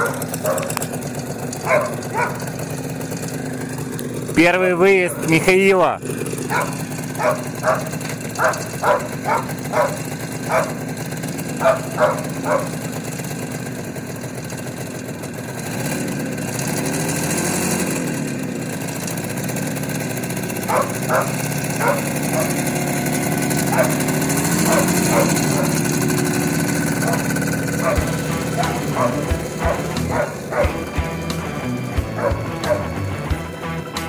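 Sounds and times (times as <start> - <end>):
dog barking: 0.0 - 0.8, 1.6 - 2.5, 6.5 - 10.8, 11.6 - 12.8, 20.7 - 22.6, 23.7 - 24.0, 24.6 - 25.8, 27.0 - 30.8, 32.2 - 32.9
motorcycle engine idling and revving: 0.0 - 34.0.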